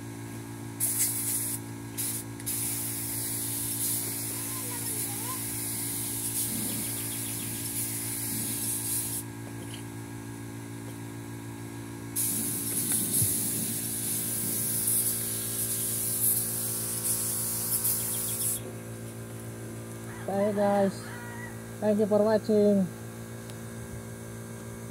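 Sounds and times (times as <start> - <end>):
steady low hum: 0.0 - 24.9
spray gun hissing: 0.8 - 9.3, 12.1 - 18.6.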